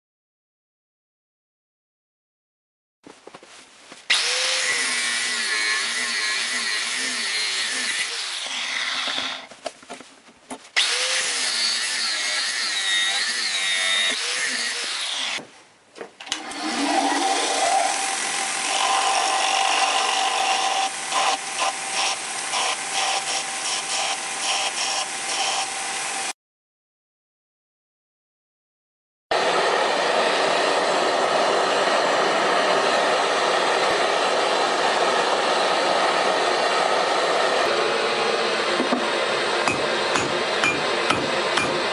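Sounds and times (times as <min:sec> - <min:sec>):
belt grinder running: 0:04.1 - 0:09.4, 0:10.8 - 0:15.2, 0:16.4 - 0:26.3, 0:39.5 - 0:41.9
angle grinder cutting steel: 0:04.1 - 0:09.5, 0:10.8 - 0:15.4, 0:16.4 - 0:26.3, 0:39.6 - 0:41.9.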